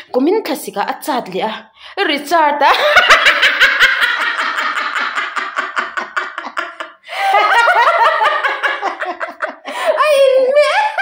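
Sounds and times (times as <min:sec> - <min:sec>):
people laughing hard: 0:02.7 - 0:11.0.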